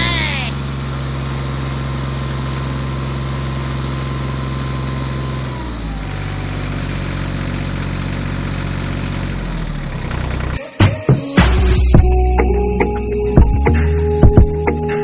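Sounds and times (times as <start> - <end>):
diesel tractor engine idling: 0.0 - 10.6.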